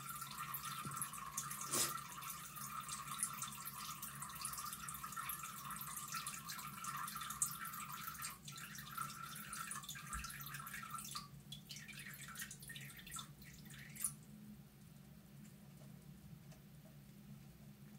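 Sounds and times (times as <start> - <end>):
cat urinating into toilet water: 0.0 - 14.4.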